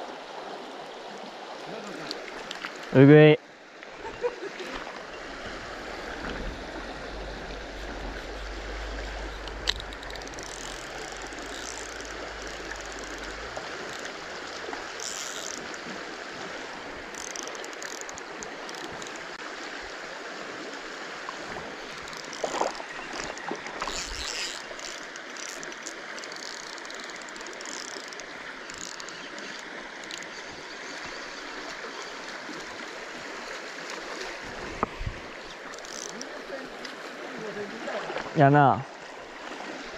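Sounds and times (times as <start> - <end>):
river flowing over gravel: 0.0 - 39.9
low rumble: 6.2 - 10.4.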